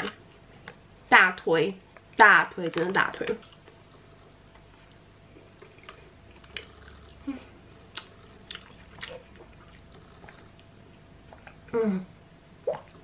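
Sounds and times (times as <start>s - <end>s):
person chewing: 3.4s - 11.7s.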